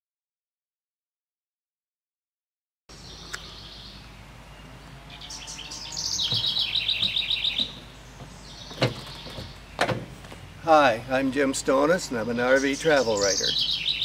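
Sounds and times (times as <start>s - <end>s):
songbird trilling: 2.9s - 14.0s
sharp thump: 6.3s - 10.2s.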